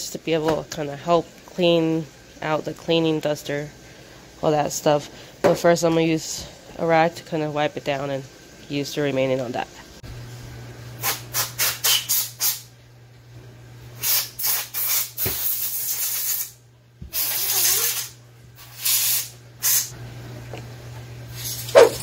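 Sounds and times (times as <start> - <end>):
spray bottle squirting: 11.0 - 12.7, 14.0 - 16.5, 17.1 - 19.9.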